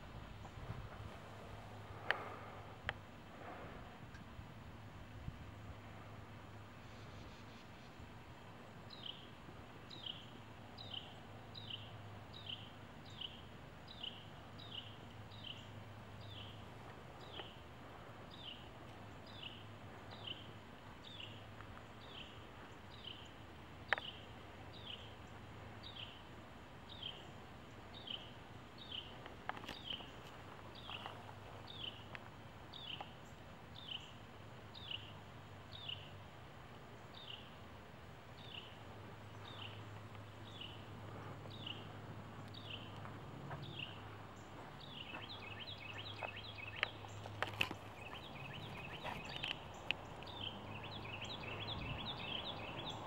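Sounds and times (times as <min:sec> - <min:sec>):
low background hum: 0:00.0 - 0:53.0
bird chirping: 0:08.9 - 0:09.3, 0:09.9 - 0:16.6, 0:18.3 - 0:26.2, 0:26.9 - 0:32.1, 0:32.7 - 0:36.2, 0:36.9 - 0:37.6, 0:38.3 - 0:53.0.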